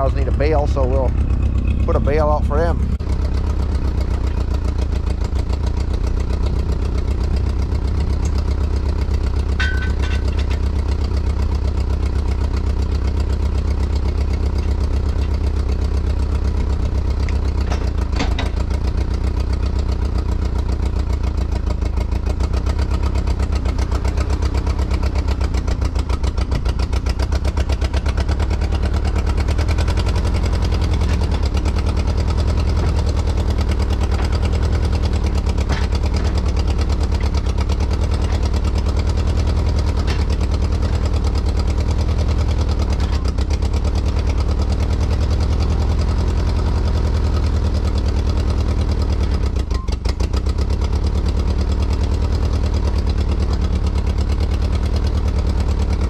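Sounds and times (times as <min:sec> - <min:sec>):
loader engine running with a miss: 0:00.0 - 0:56.0.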